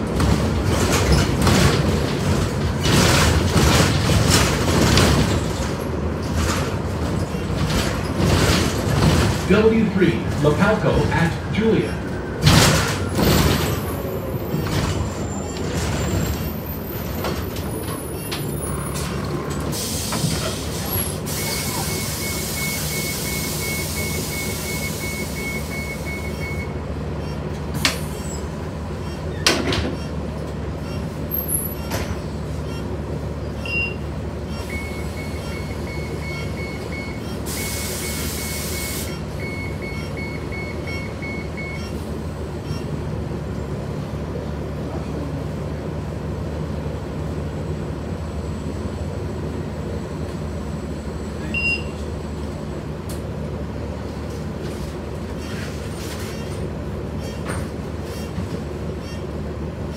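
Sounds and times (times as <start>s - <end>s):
bus engine running: 0.0s - 59.9s
rapid warning beeps: 33.6s - 42.0s.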